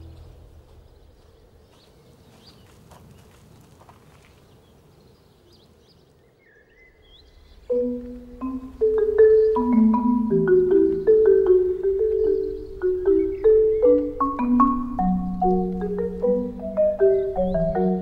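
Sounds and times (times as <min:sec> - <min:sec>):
faint bird chirps: 0:04.4 - 0:09.9, 0:10.7 - 0:14.6
marimba notes: 0:07.7 - 0:18.0.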